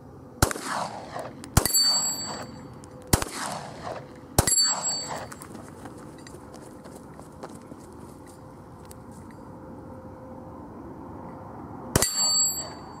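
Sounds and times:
pistol shots with echo: 0:00.4 - 0:05.3
steel target ringing: 0:01.6 - 0:02.8, 0:03.4 - 0:05.4, 0:12.0 - 0:13.0.

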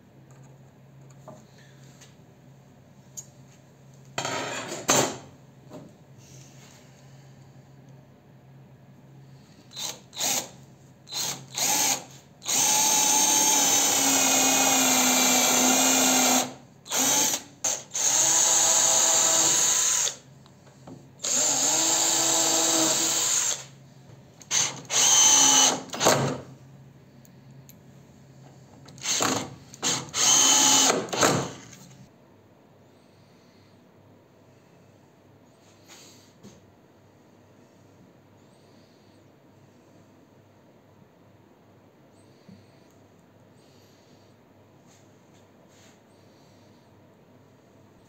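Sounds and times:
cordless drill driving screws: 0:09.7 - 0:10.5, 0:11.1 - 0:20.2, 0:21.2 - 0:23.7, 0:24.5 - 0:26.2, 0:29.0 - 0:31.7.

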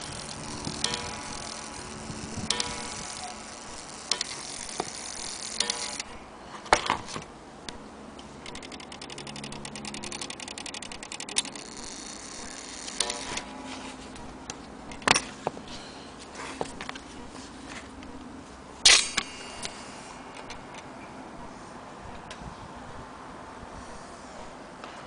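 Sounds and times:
clock mechanism clicking rapidly: 0:00.0 - 0:06.2, 0:08.4 - 0:13.6.

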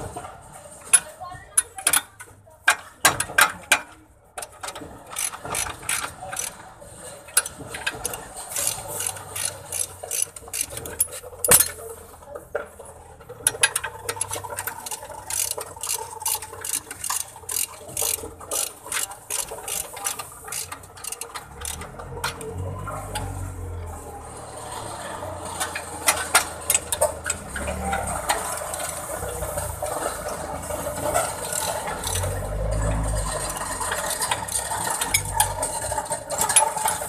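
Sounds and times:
ratchet wrench clicking: 0:04.6 - 0:06.6, 0:07.4 - 0:11.8, 0:13.4 - 0:22.5, 0:31.4 - 0:32.4.

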